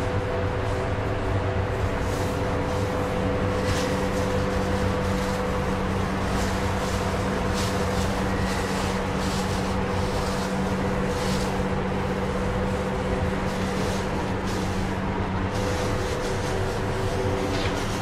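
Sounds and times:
steady machine hum: 0.0s - 18.0s
cloth rustling on plastic sheet: 0.1s - 18.0s.

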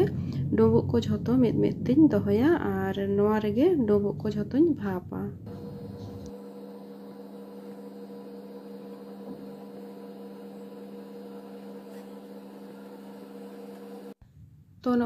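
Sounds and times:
electrical hum: 0.0s - 15.0s.

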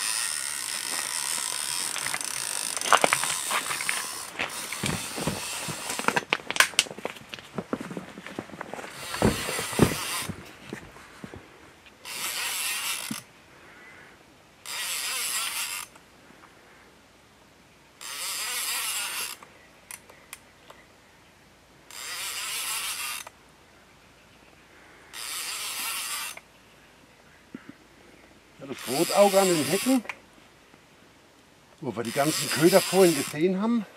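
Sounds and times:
fishing reel cranking: 0.0s - 6.0s, 12.0s - 13.3s, 14.6s - 16.0s, 18.0s - 20.0s, 21.9s - 23.3s, 25.1s - 26.4s, 28.8s - 30.0s, 32.0s - 33.5s.

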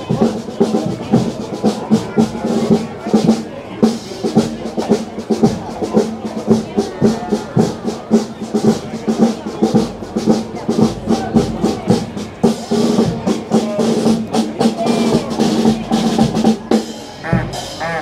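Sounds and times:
bass drum beat: 6.4s - 18.0s.

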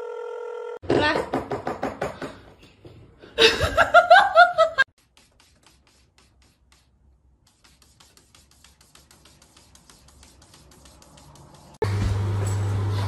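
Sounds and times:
person laughing: 3.4s - 4.9s.

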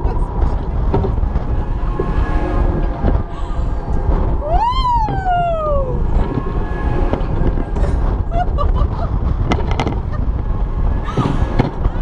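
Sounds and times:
wind buffeting microphone: 0.0s - 12.0s
person whooping: 4.4s - 6.4s.

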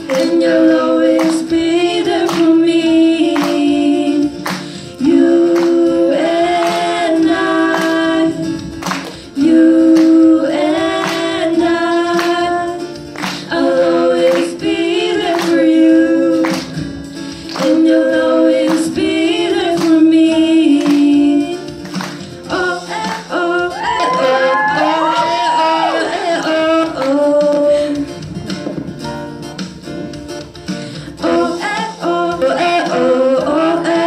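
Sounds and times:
two women singing: 0.0s - 28.2s, 31.1s - 34.0s
backing track with steady beat: 0.0s - 34.0s.

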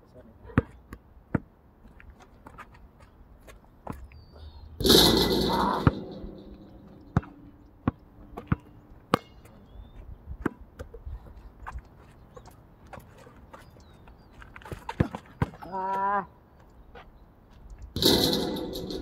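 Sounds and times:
basketball bouncing on asphalt: 0.6s - 2.6s, 6.8s - 11.0s, 11.7s - 15.7s
basketball hitting metal hoop: 4.8s - 8.0s, 18.0s - 19.0s.

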